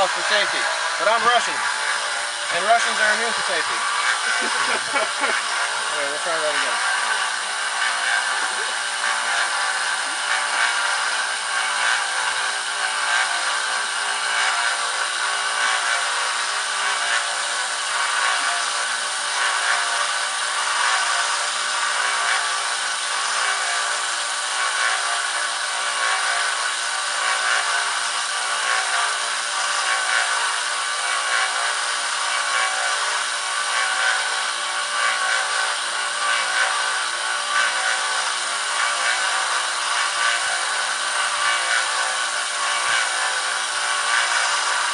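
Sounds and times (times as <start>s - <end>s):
belt sander whining: 0.0s - 44.9s
blade grinding on belt: 0.0s - 44.9s.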